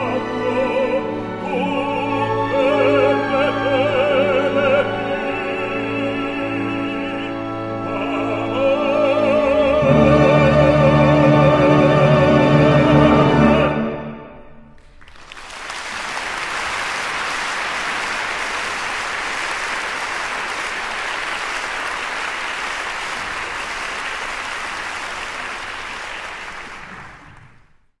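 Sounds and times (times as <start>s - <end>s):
audience applauding: 14.8s - 28.0s.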